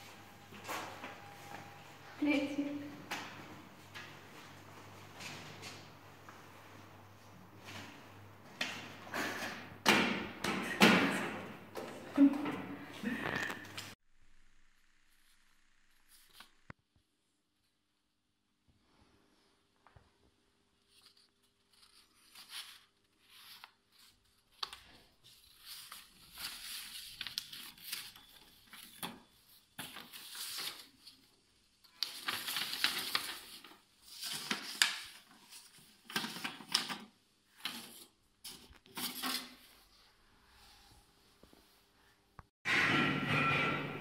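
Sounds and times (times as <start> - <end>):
paper rustling and crinkling: 20.8 - 40.0.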